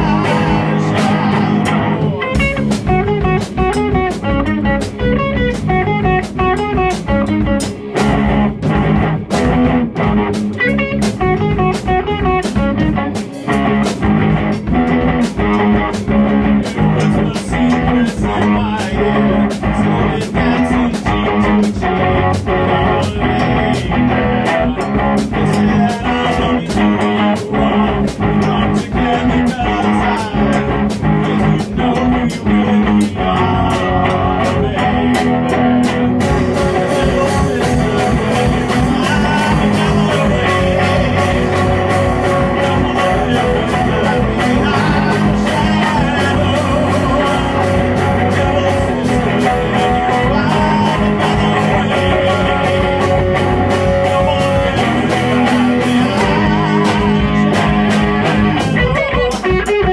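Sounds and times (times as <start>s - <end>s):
person singing: 0.0s - 4.0s, 16.4s - 59.9s
drum kit beat: 0.0s - 59.9s
electric guitars: 0.0s - 59.9s.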